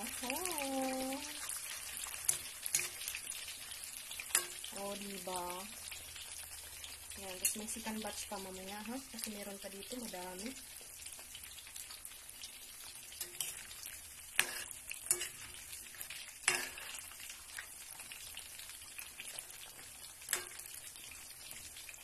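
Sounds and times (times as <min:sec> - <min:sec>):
wedges sizzling in hot oil: 0:00.0 - 0:22.0
spatula scraping a pan: 0:01.4 - 0:03.4, 0:13.1 - 0:18.0.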